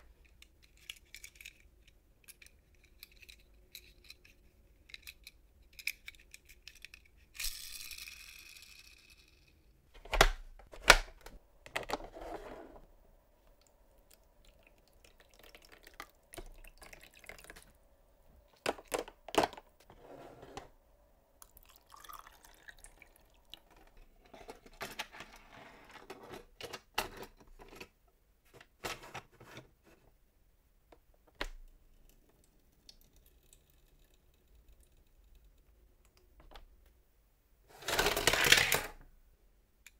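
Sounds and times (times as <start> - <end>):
water dripping and splashing: 14.4 - 17.6.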